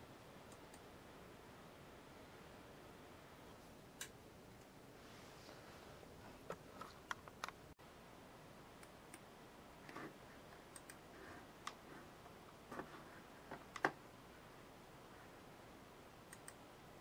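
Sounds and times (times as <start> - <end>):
low steady hiss: 0.0 - 17.0
computer mouse clicks: 10.6 - 11.0, 11.6 - 11.8, 16.3 - 16.6.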